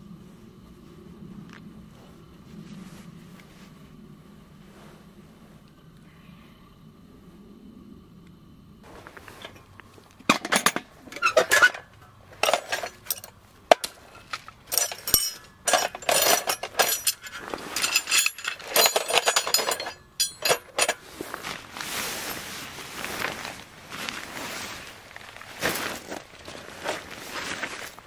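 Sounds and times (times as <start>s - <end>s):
metal stakes clinking: 9.3s - 21.1s
tool box unlatched and opened: 10.2s - 21.0s
canvas bag rustling: 21.1s - 28.0s.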